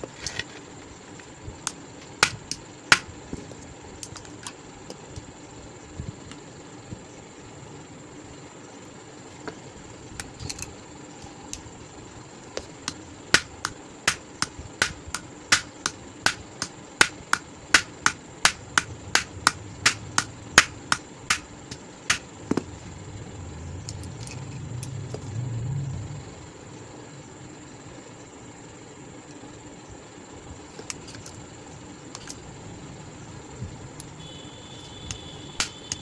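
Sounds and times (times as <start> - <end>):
low rumble: 18.6 - 26.9.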